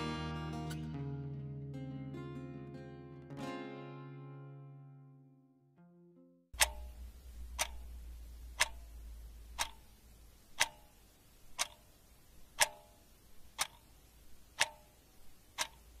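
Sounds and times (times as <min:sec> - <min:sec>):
clock ticking: 0:06.6 - 0:16.0.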